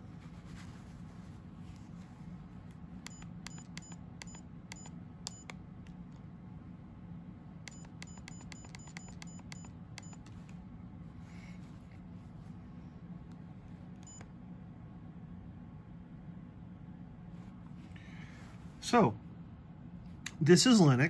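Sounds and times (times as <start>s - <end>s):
camera button beeps: 3.0s - 5.5s, 7.7s - 10.5s, 14.0s - 14.3s.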